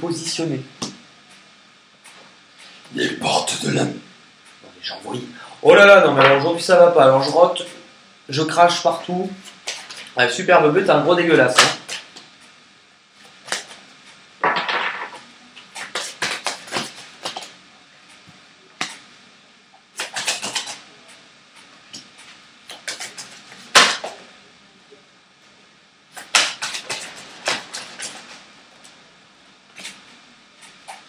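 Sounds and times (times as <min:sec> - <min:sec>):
cards shuffled clicking: 0:13.3 - 0:13.8, 0:14.5 - 0:17.5, 0:20.0 - 0:20.8, 0:22.7 - 0:24.2, 0:26.2 - 0:28.4
card snap: 0:22.7 - 0:24.2.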